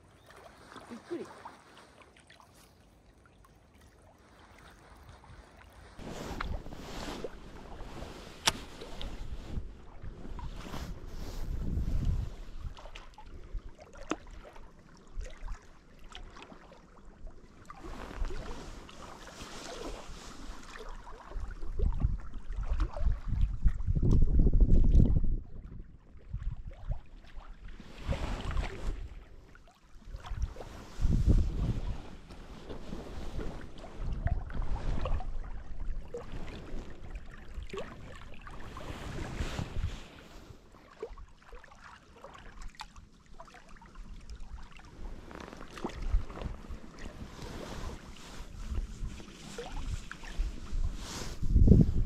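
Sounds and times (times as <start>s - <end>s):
gentle water lapping: 0.0s - 52.0s
wind buffeting microphone: 5.2s - 13.0s, 21.4s - 27.0s, 30.1s - 40.5s, 45.0s - 52.0s.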